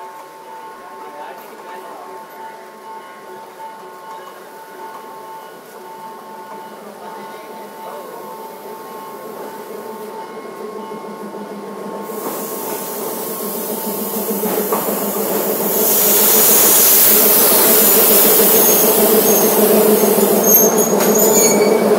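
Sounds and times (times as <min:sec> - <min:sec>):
hissing rush: 0:12.1 - 0:20.8
faint high squeals: 0:18.5 - 0:21.9.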